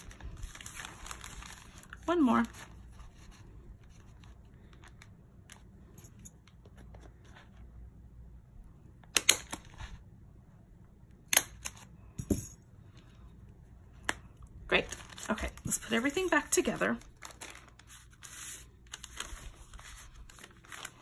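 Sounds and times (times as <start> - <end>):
paper handling: 0.0 - 5.6, 14.7 - 21.0.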